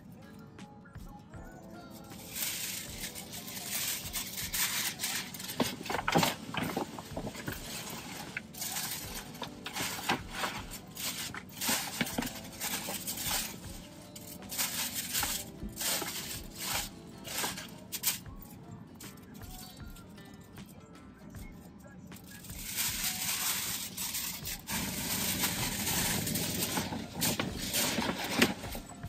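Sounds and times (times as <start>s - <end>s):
tissue paper rustling: 2.2s - 18.2s, 22.5s - 29.0s.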